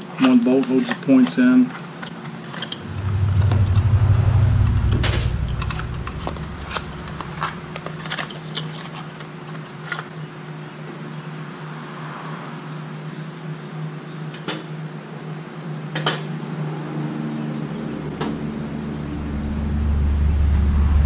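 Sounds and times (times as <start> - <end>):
low rumble: 2.8 - 8.6, 17.9 - 21.0.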